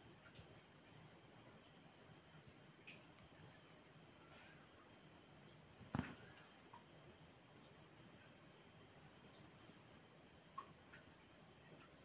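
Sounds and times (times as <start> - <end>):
crickets trilling: 0.0 - 12.0
small tick: 0.2 - 0.6, 2.8 - 3.3, 10.4 - 12.0.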